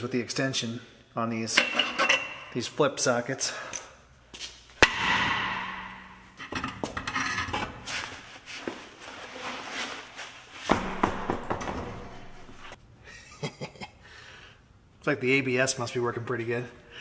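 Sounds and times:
knocks: 10.7 - 12.7.

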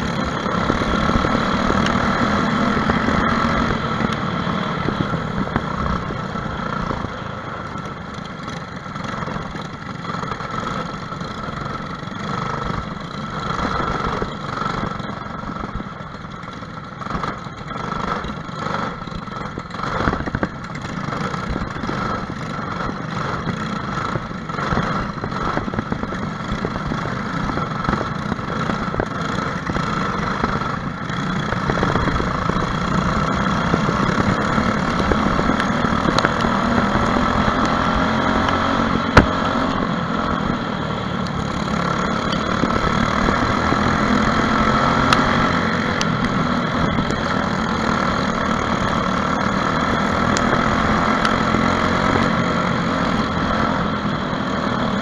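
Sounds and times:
kart engine running: 0.0 - 55.0
other kart engines: 0.0 - 55.0.

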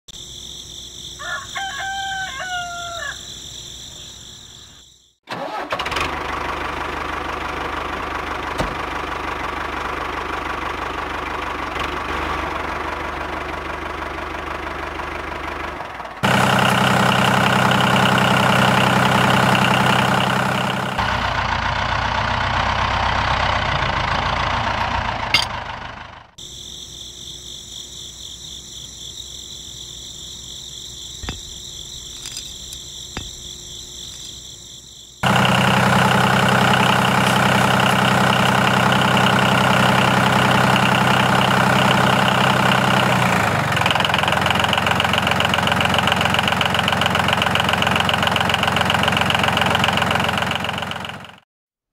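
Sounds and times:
insect drone: 0.1 - 5.7, 26.3 - 43.1
rooster crowing: 1.2 - 3.6
engine rumbling: 3.6 - 27.0, 27.6 - 51.4.

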